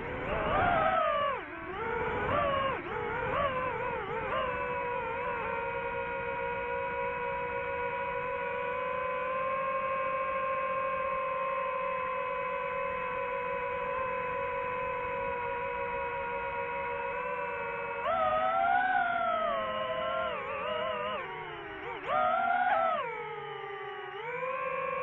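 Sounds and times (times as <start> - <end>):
drone propellers whining: 0.0 - 25.0.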